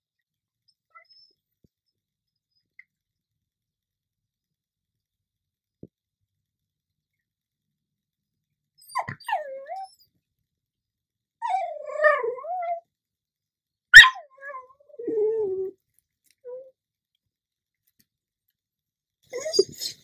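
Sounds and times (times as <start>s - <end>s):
dog whining and yowling: 8.8s - 10.1s, 11.4s - 12.9s, 13.9s - 15.8s, 16.4s - 16.7s, 19.3s - 20.0s.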